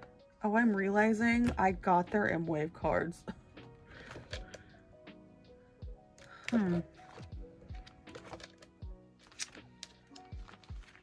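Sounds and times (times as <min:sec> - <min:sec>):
photocards clicking: 0:04.0 - 0:04.7, 0:06.1 - 0:11.0.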